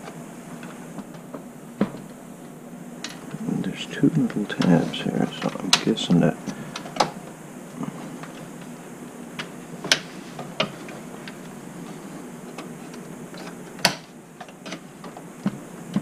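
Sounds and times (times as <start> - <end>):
clicks and knocks in computer case: 13.8 - 16.0.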